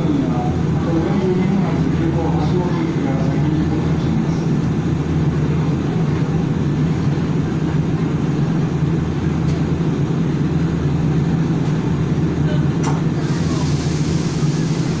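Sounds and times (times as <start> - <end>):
electric train hum: 0.0 - 15.0.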